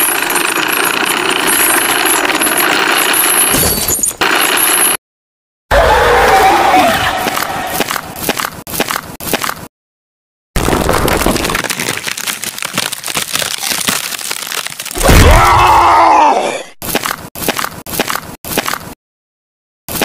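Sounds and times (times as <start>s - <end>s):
crackling crunching noise: 7.2s - 9.7s, 10.6s - 15.5s, 16.8s - 19.0s.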